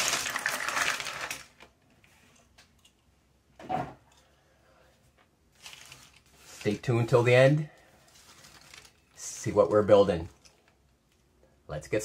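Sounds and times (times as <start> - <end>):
puzzle pieces clattering onto table: 0.0 - 1.5.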